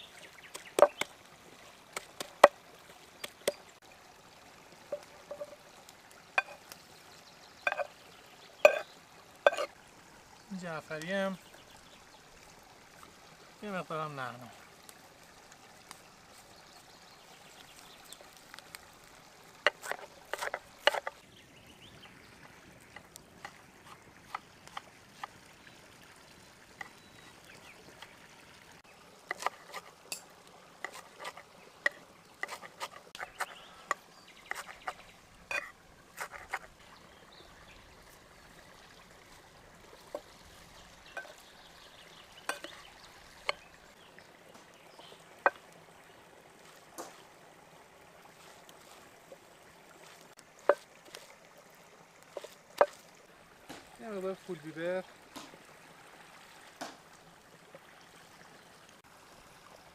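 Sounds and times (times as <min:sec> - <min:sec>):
knife tapping clay bowl: 0:04.9 - 0:05.6, 0:06.4 - 0:06.6, 0:07.7 - 0:07.9, 0:08.6 - 0:08.8, 0:09.5 - 0:09.7.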